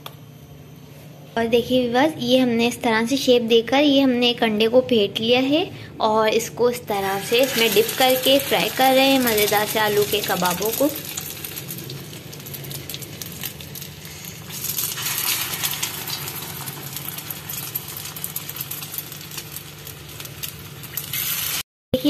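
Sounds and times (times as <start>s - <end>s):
food sizzling in oil: 6.9s - 21.6s.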